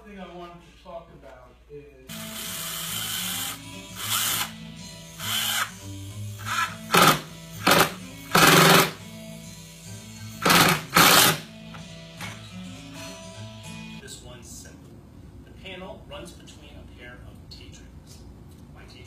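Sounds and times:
background music: 2.1 - 14.1
power drill short bursts: 5.2 - 5.8, 6.4 - 9.0, 10.4 - 11.4.

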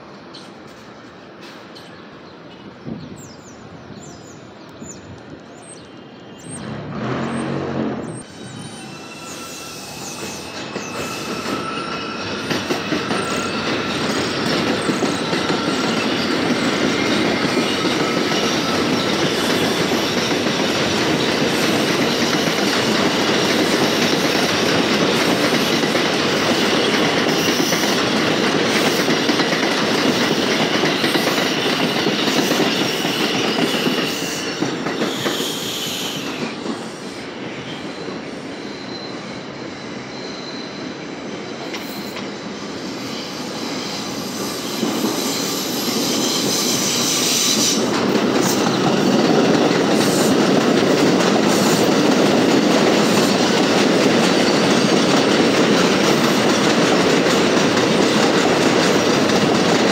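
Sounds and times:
subway trains passing on rails: 0.0 - 59.9
high wheel squeal: 5.7 - 20.6, 31.0 - 47.9.

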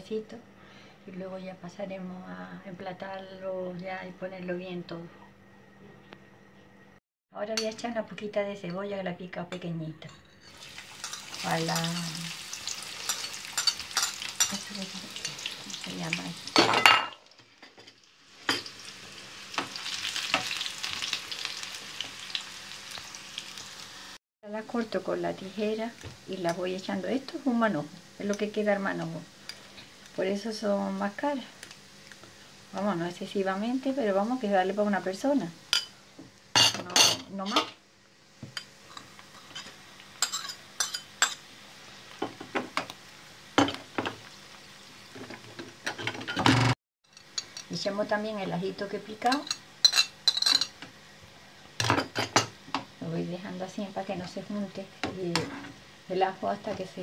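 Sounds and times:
onion sizzling in oil: 10.4 - 36.6, 37.3 - 45.9, 47.0 - 57.0
metal spoon clinking on pan: 13.0 - 14.6, 39.5 - 41.4, 49.3 - 50.7.

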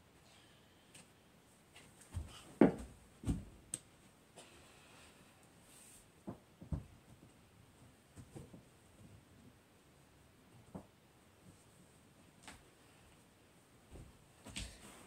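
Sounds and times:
dull thumps of football: 2.1 - 3.6.

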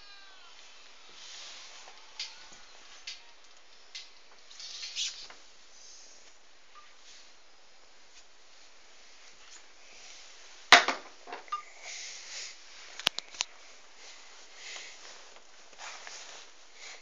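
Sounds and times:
faint rustling: 0.2 - 10.8, 11.9 - 17.0.

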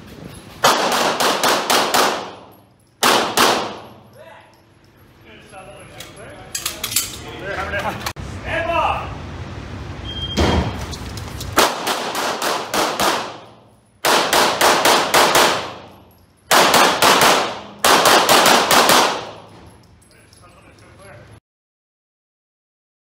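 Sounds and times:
pistol shots echoing indoors: 0.6 - 4.1, 11.6 - 19.5
shot timer beep: 10.0 - 10.6.

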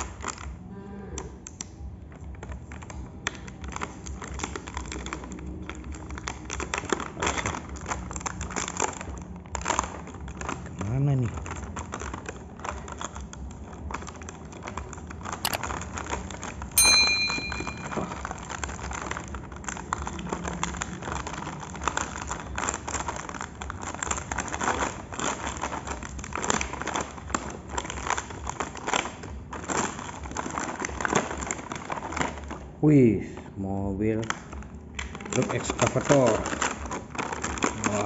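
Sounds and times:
plastic packaging crinkling: 2.3 - 16.8, 17.7 - 33.0, 34.0 - 38.0
sharp snap with ringing: 16.8 - 18.1.

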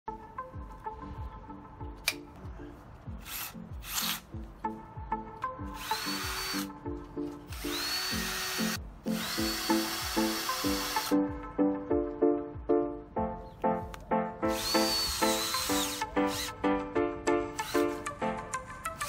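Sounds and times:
cordless drill motor whine: 5.8 - 6.7, 7.5 - 11.1, 14.6 - 16.5.

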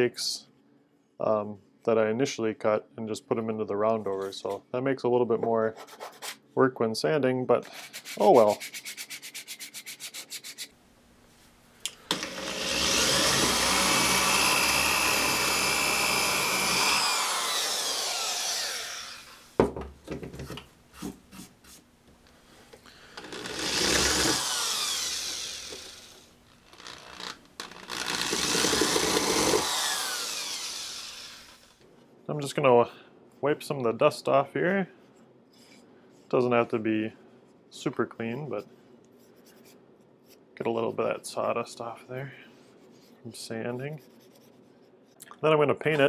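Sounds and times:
sandpaper rubbing on wood: 7.7 - 10.8
drill boring into wood: 12.1 - 19.5, 23.1 - 31.8.

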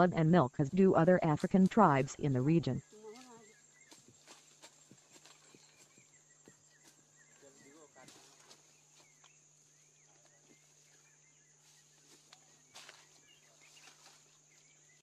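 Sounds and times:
bird chirps: 0.0 - 15.0
high insect drone: 2.8 - 15.0.

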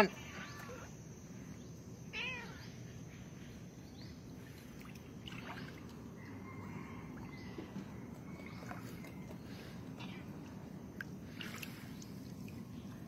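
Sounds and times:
water lapping: 4.3 - 13.0.

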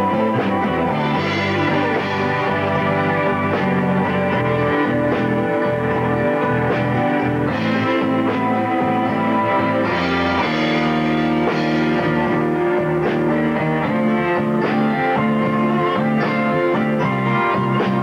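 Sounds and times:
drums: 0.0 - 18.0
electric guitar: 0.0 - 18.0
sustained keyboard chords: 0.0 - 18.0.

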